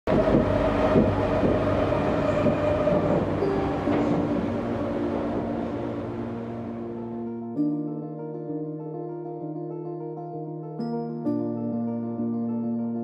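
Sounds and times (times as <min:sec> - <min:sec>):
train wheels rumbling on rail: 0:00.1 - 0:06.9
train motor hum and whine: 0:00.1 - 0:07.0.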